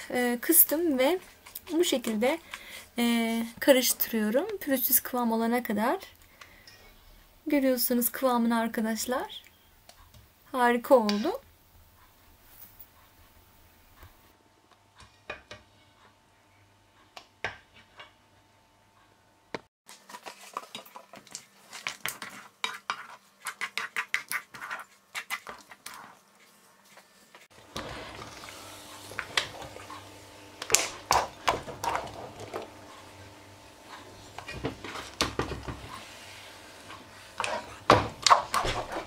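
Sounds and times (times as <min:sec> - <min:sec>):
whisk scraping against pot: 0:19.9 - 0:27.1, 0:33.9 - 0:39.0.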